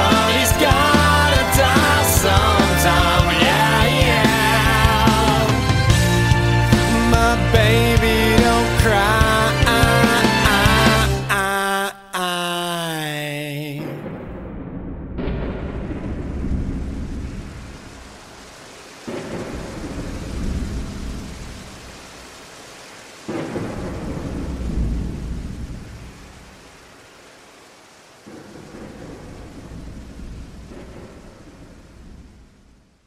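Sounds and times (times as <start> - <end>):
steady rain: 0.0 - 11.6, 15.3 - 33.0
rolling thunder: 13.8 - 22.4, 23.2 - 26.8, 28.2 - 33.0.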